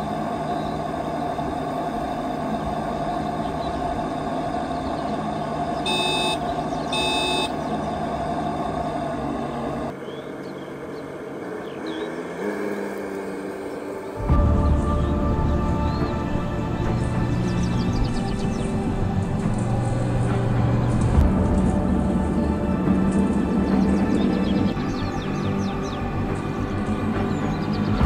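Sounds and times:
vehicle engine idling: 0:00.0 - 0:10.2
birds chirping: 0:00.0 - 0:28.0
short electronic beeps: 0:05.9 - 0:07.6.

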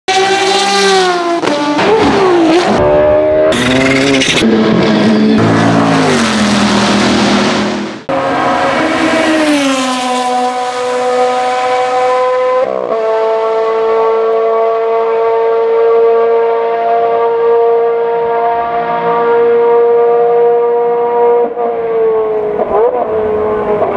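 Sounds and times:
racing car engines revving: 0:00.1 - 0:23.9.

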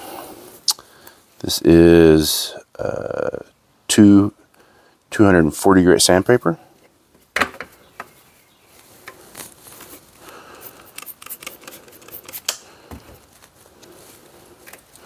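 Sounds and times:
spray bottle spraying: 0:10.8 - 0:12.5.

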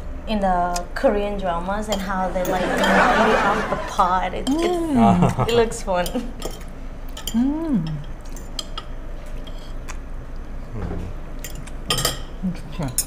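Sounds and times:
cutlery clinking on ceramic plates: 0:11.4 - 0:12.3.

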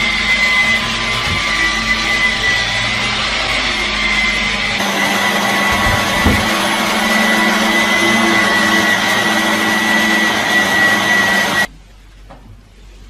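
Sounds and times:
cordless vacuum whining: 0:00.0 - 0:11.7.

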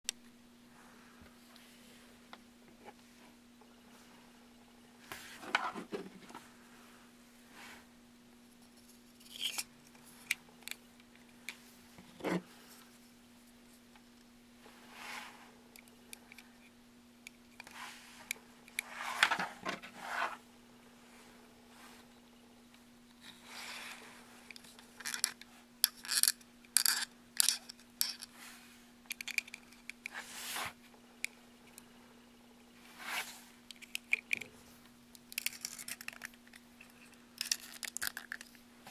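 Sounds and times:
faint steady hum: 0:00.1 - 0:38.9
plastic parts scraping together: 0:09.2 - 0:11.3, 0:23.2 - 0:28.3, 0:35.2 - 0:38.9.

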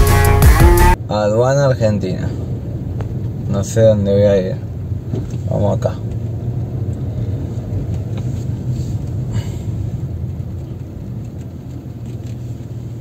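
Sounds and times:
car engine rumble: 0:00.0 - 0:13.0.

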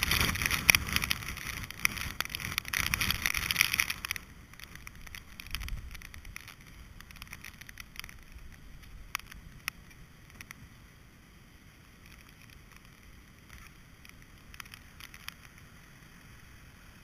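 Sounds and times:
sharp ticks: 0:00.0 - 0:10.6, 0:11.9 - 0:15.7
wind rumbling on microphone: 0:00.0 - 0:10.8.

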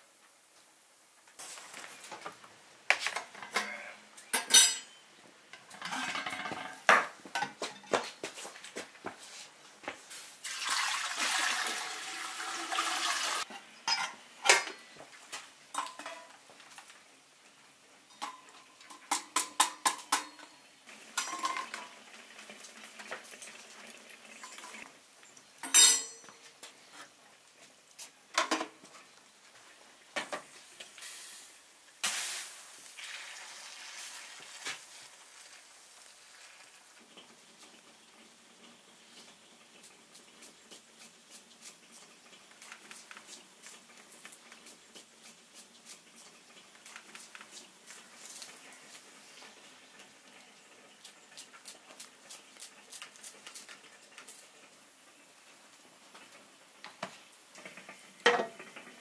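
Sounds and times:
water pouring into metal samovar: 0:10.4 - 0:13.5, 0:20.9 - 0:24.9, 0:32.3 - 0:37.3.

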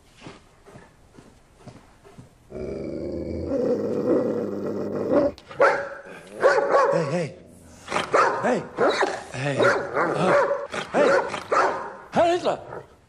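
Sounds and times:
dog growling: 0:02.5 - 0:05.5
dog barking: 0:05.6 - 0:07.1, 0:08.1 - 0:12.0.

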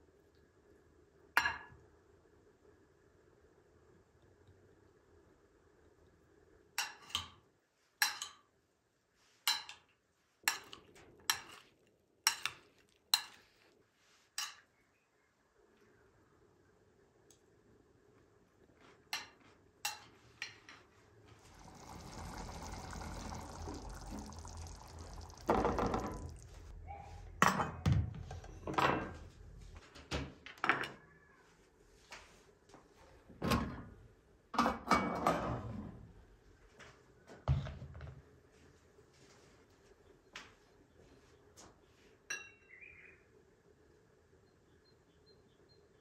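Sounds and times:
pouring sound: 0:21.4 - 0:26.8.

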